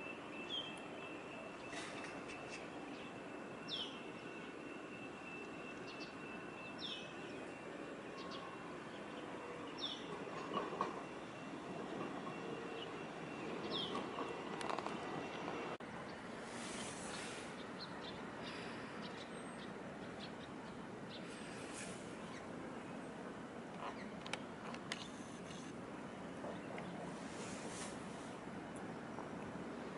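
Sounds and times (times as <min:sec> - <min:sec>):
thin high whine: 0:00.0 - 0:13.3
outdoor ambient noise: 0:00.0 - 0:29.9.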